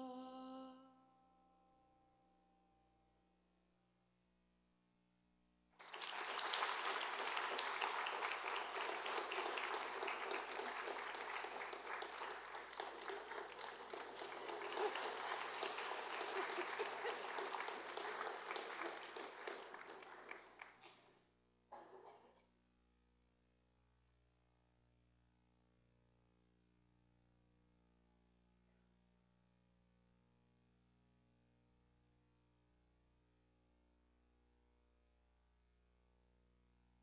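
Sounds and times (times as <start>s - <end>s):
audience applauding: 5.8s - 21.1s.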